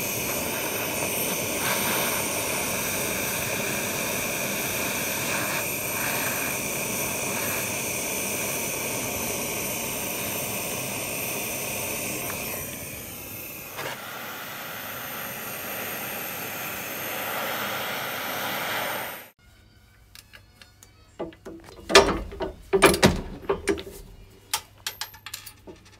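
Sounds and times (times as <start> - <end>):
torch flame hissing: 0.0 - 19.4.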